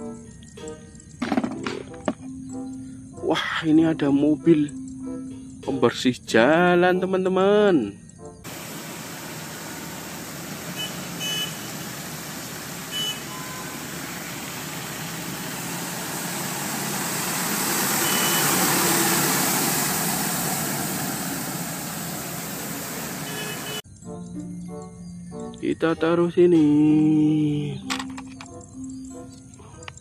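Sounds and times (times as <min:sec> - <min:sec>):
street sweeper truck on wet road: 0:08.5 - 0:23.8.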